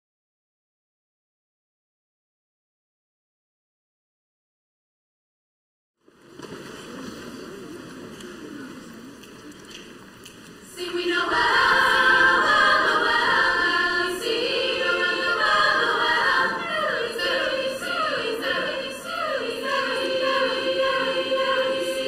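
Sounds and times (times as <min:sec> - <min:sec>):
quiet hall noise: 0:06.0 - 0:22.0
girls' choir singing: 0:10.7 - 0:22.0.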